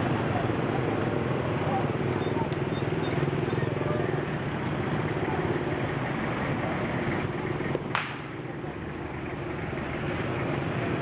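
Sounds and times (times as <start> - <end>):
crowd chatter: 0.0 - 11.0
street traffic: 0.0 - 11.0
sharp crack: 7.8 - 8.4.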